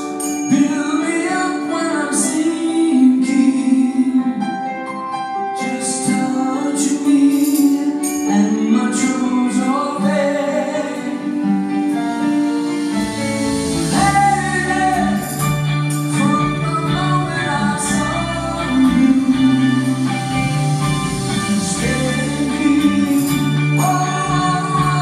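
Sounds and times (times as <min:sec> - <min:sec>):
live rock band: 0:00.0 - 0:25.0
sustained keyboard chords: 0:00.0 - 0:25.0
bass guitar: 0:11.1 - 0:25.0.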